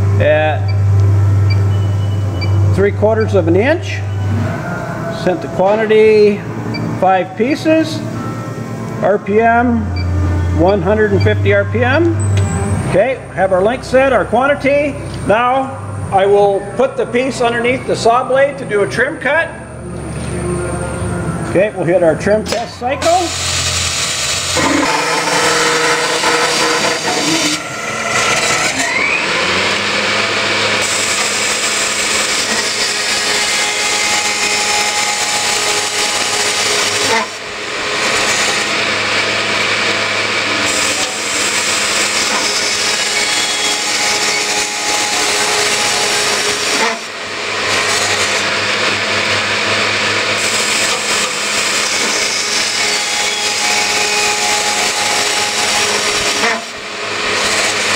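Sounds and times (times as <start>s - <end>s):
saw motor hum: 22.2s - 57.9s
circular saw cutting steel: 22.3s - 57.9s.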